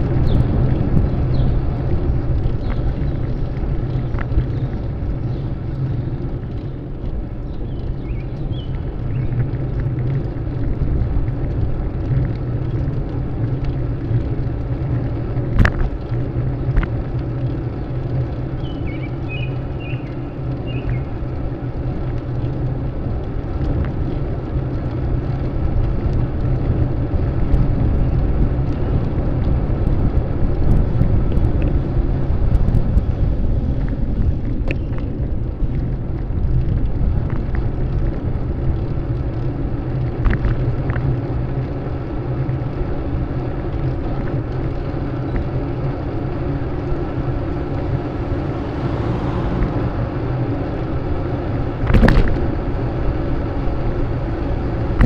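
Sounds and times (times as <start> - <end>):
wind and road noise rumble: 0.0 - 55.0
light ticks: 2.3 - 5.8.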